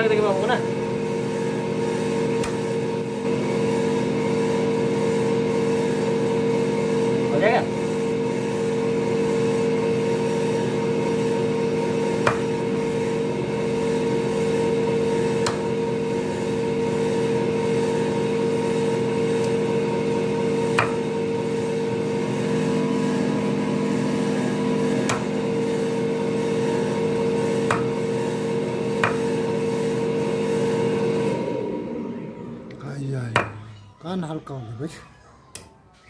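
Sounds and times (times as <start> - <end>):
motor humming: 0.0 - 35.6
knife chopping on wooden block: 2.4 - 2.7, 12.2 - 12.6, 15.4 - 15.7, 20.7 - 21.1, 25.0 - 25.4, 27.6 - 28.0, 29.0 - 29.4.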